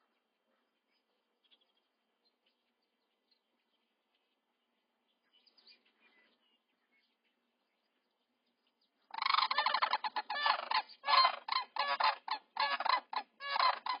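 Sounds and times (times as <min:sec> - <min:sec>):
cranes calling: 0:09.1 - 0:14.0.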